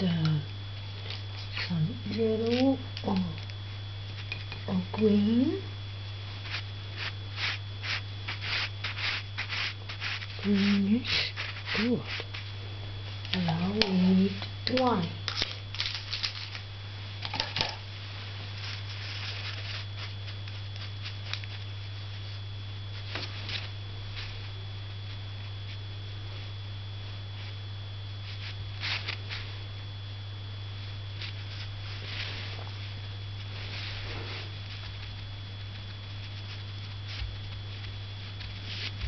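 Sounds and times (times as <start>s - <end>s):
faint high whine: 0.0s - 39.0s
low electrical hum: 0.0s - 39.0s
hands rustling paper: 6.4s - 12.4s, 14.7s - 16.6s, 18.5s - 21.7s.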